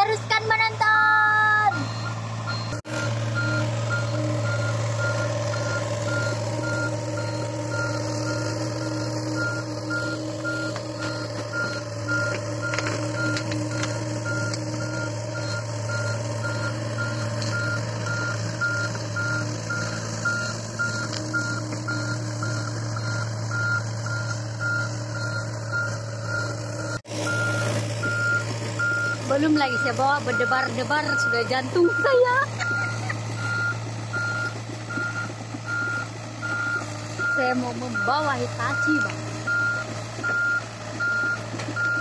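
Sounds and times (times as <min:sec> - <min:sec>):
excavator engine running: 0:00.0 - 0:42.0
travel alarm beeping: 0:01.7 - 0:42.0.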